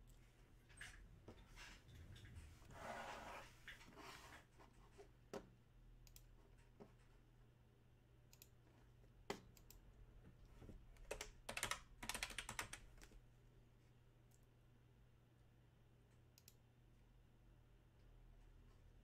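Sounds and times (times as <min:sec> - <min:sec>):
mouse clicks: 0:06.0 - 0:06.3, 0:08.3 - 0:08.6
keyboard typing: 0:11.0 - 0:13.2.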